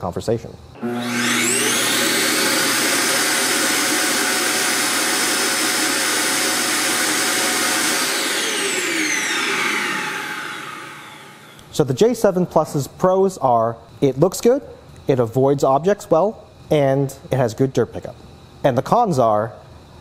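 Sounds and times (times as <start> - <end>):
vacuum dock motor whining: 0.8 - 11.7.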